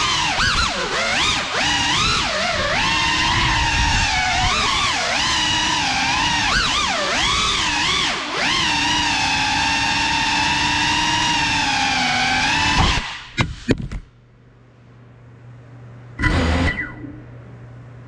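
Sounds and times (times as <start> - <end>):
drone motors whining: 0.0 - 13.2, 16.2 - 17.4
faint low hum: 13.8 - 18.0.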